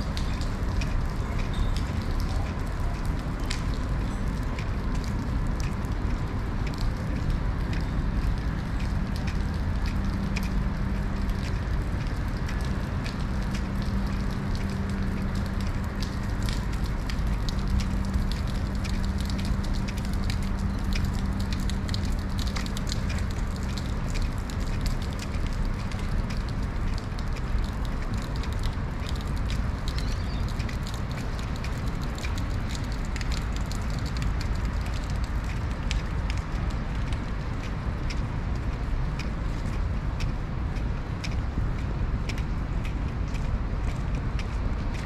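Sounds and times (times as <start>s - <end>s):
low steady hum: 0.0s - 45.0s
rain on wet paving: 0.0s - 45.0s.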